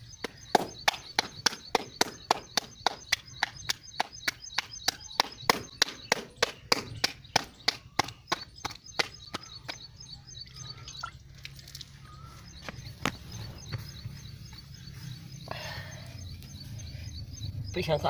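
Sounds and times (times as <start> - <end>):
small birds chirping: 0.0 - 18.0
dough slapped between palms: 0.2 - 9.8.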